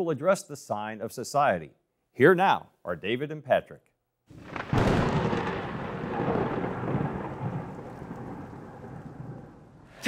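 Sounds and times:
steady rain: 4.3 - 10.0
thunder rumbling: 4.3 - 10.0.

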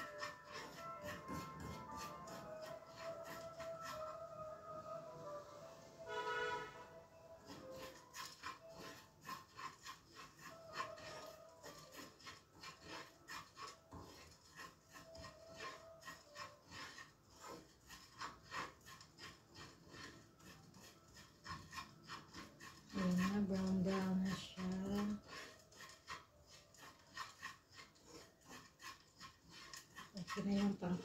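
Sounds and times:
spoon scraping in a pan: 0.0 - 31.0.

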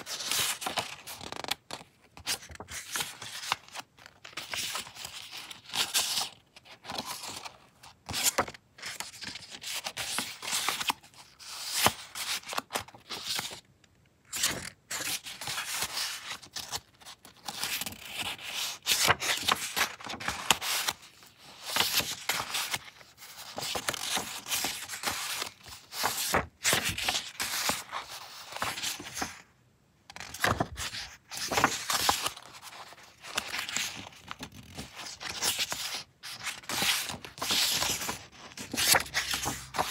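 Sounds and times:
paper rustling and flicking: 14.4 - 29.4, 30.2 - 39.9.

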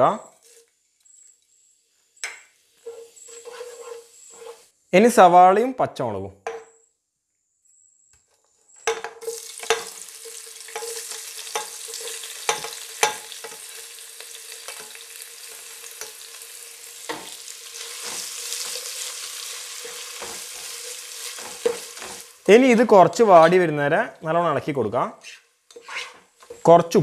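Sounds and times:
onions sizzling in hot oil: 0.3 - 4.7, 9.2 - 23.4.

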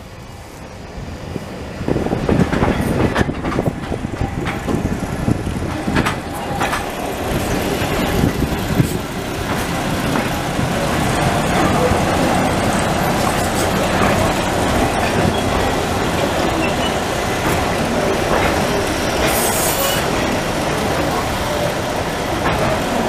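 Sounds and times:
railway carriage wheels rumbling: 0.0 - 23.0.

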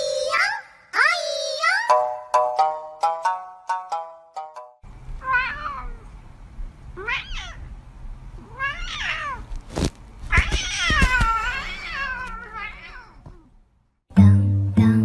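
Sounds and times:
cat meowing: 5.2 - 6.1, 7.0 - 7.7, 8.4 - 9.6, 10.3 - 13.5.

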